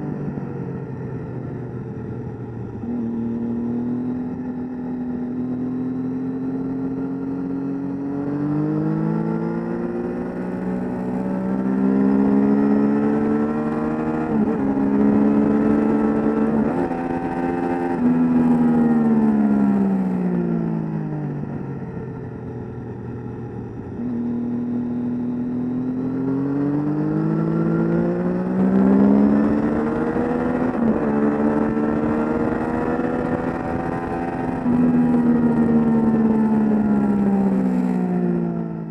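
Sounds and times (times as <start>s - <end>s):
motorcycle engine at speed: 0.0s - 38.9s.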